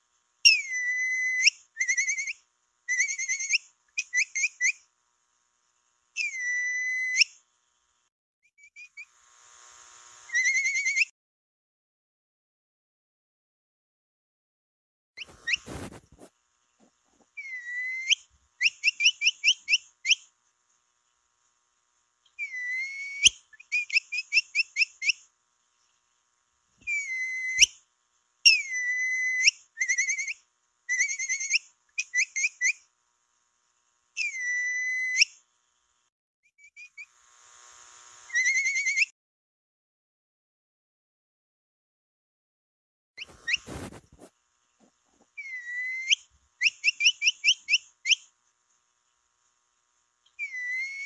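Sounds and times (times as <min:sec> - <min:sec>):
capybara whistle calls: 0:00.5 - 0:04.8, 0:06.2 - 0:07.3, 0:10.3 - 0:11.1, 0:17.4 - 0:20.2, 0:22.4 - 0:25.2, 0:26.8 - 0:27.8, 0:28.5 - 0:32.8, 0:34.2 - 0:35.4, 0:38.3 - 0:39.1, 0:45.4 - 0:48.2, 0:50.4 - 0:51.0.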